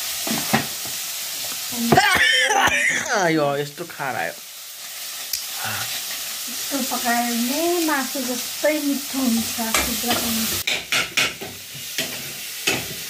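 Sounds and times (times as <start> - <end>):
food sizzling in a wok: 0.0 - 13.0
spatula knocking against pan: 9.7 - 12.9.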